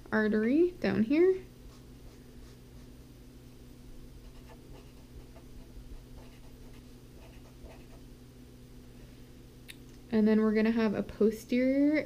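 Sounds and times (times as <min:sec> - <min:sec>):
steady low hum: 0:00.0 - 0:12.0
marker scratching on paper: 0:04.2 - 0:08.0.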